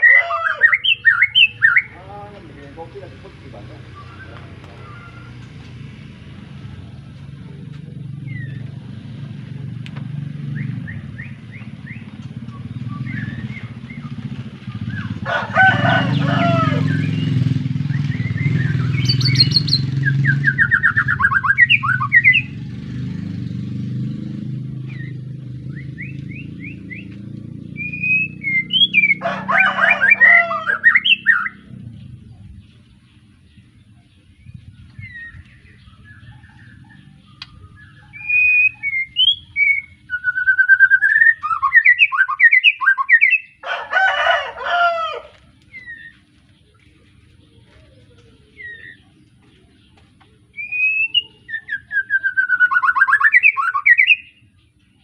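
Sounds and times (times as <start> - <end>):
bird singing whistled phrases: 0.0 - 2.0, 10.5 - 14.1, 17.0 - 22.5, 27.7 - 29.2, 30.8 - 31.6, 35.0 - 43.6, 50.6 - 54.4
harsh bird chattering: 0.0 - 5.5, 18.0 - 22.6, 27.8 - 31.7
low rumble: 31.5 - 39.6.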